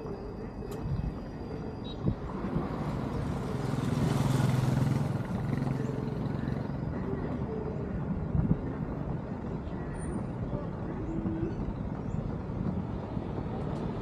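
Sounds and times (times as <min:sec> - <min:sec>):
vehicle passing by: 0:02.3 - 0:07.0.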